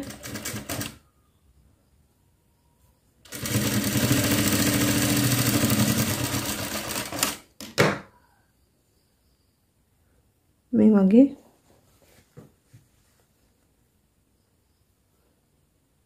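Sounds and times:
sewing machine running: 0:00.0 - 0:01.0, 0:03.3 - 0:07.4.

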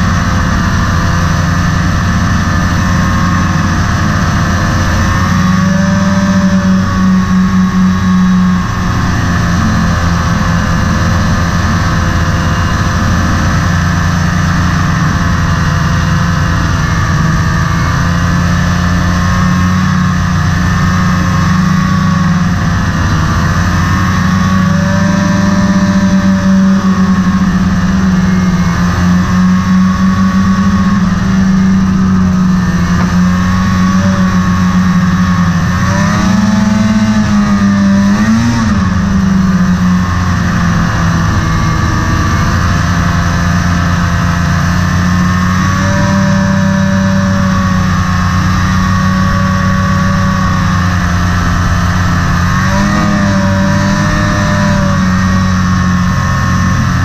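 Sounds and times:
snowmobile engine running: 0:00.0 - 0:57.0.

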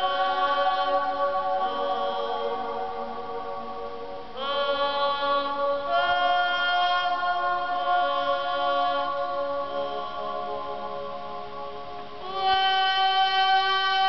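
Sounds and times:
long echo in a dome: 0:00.0 - 0:14.0
woman singing long held notes: 0:00.0 - 0:14.0.

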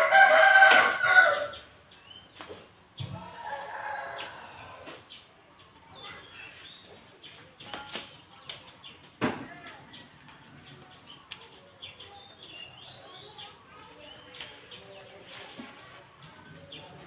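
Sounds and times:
rooster crowing: 0:00.0 - 0:01.6.

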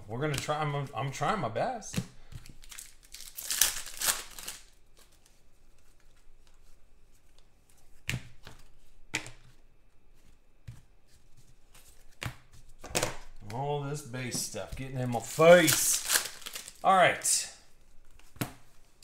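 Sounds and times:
foil wrapper tearing and rustling: 0:02.6 - 0:04.8, 0:15.2 - 0:16.9.

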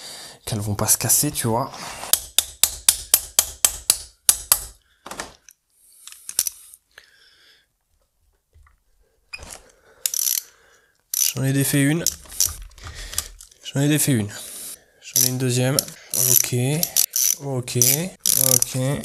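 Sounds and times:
tool handling: 0:02.1 - 0:06.6, 0:11.1 - 0:13.6, 0:15.2 - 0:19.0
ratchet wrench clicking: 0:10.0 - 0:10.5, 0:11.1 - 0:11.4, 0:12.0 - 0:13.4, 0:15.2 - 0:18.8.

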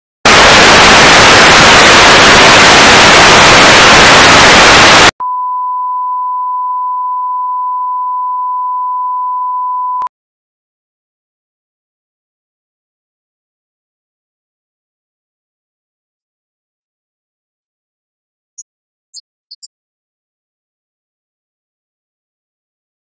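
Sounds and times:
television static hiss: 0:00.3 - 0:05.1
broadcast test tone: 0:00.3 - 0:10.1.

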